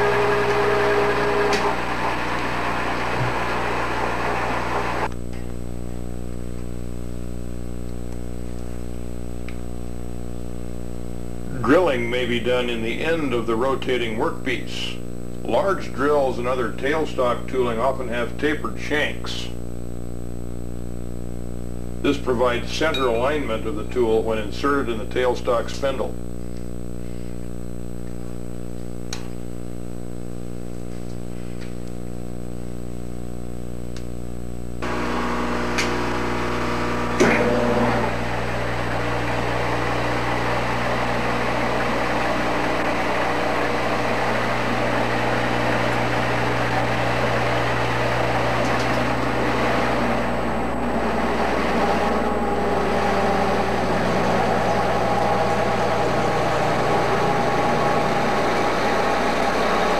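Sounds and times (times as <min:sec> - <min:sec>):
drill cutting into metal: 0:00.0 - 0:05.1, 0:34.8 - 0:59.9
lathe humming: 0:00.0 - 0:05.2, 0:34.8 - 0:59.9.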